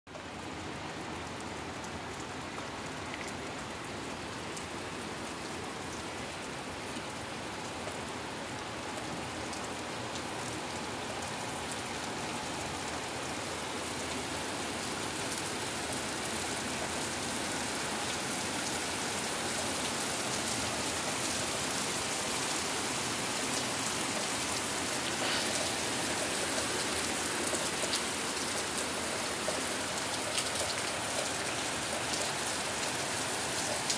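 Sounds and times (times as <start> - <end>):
heavy rain falling: 0.1 - 33.9.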